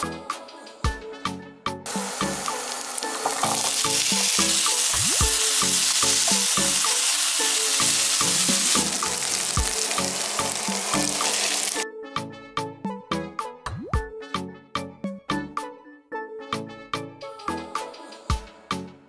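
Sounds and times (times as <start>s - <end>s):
background music with steady beat: 0.0s - 19.0s
potatoes sizzling in oil: 1.9s - 11.8s.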